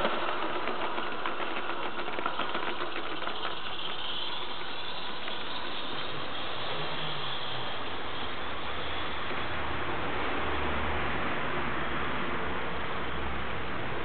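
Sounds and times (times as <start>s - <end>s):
model train rolling on track: 0.0s - 10.2s
steady background noise: 0.0s - 14.0s.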